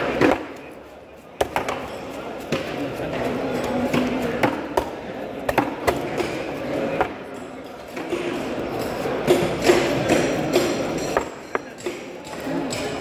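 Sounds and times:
murmur of voices: 0:00.0 - 0:13.0.

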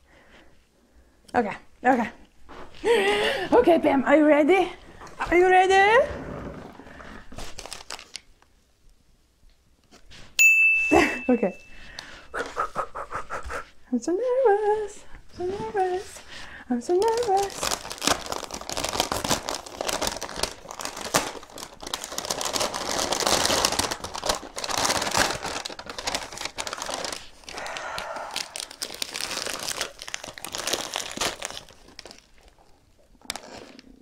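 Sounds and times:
paper wrapping crinkling: 0:07.2 - 0:08.5, 0:15.4 - 0:34.0.

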